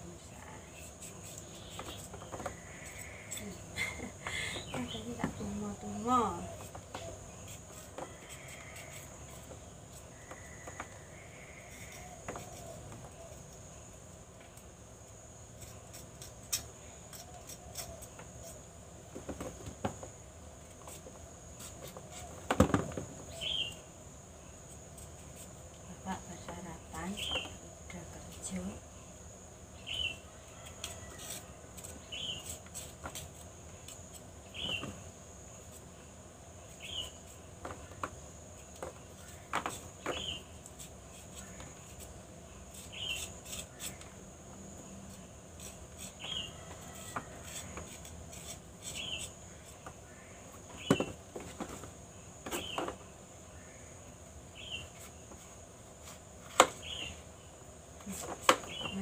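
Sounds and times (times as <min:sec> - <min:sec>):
insects droning: 0:00.0 - 0:59.0
knife cutting fruit: 0:15.5 - 0:18.6, 0:36.8 - 0:44.2, 0:45.1 - 0:50.0
bird chirping: 0:23.3 - 0:23.9, 0:29.8 - 0:30.2, 0:34.5 - 0:35.0, 0:36.7 - 0:37.2, 0:40.0 - 0:40.5, 0:42.8 - 0:43.3, 0:48.9 - 0:49.3, 0:52.6 - 0:55.1, 0:56.8 - 0:57.5, 0:58.6 - 0:59.0.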